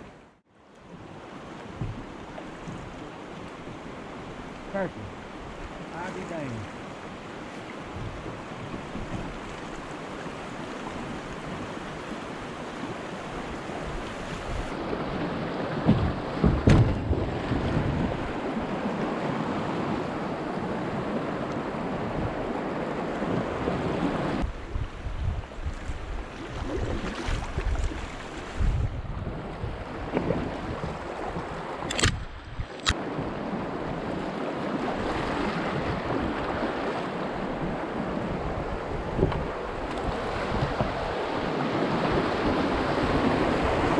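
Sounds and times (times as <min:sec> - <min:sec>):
rushing river water: 0:00.0 - 0:43.9
kayak thumps: 0:01.7 - 0:03.0, 0:15.8 - 0:18.4
wind on the microphone: 0:07.8 - 0:09.9, 0:15.8 - 0:19.1, 0:20.8 - 0:43.9.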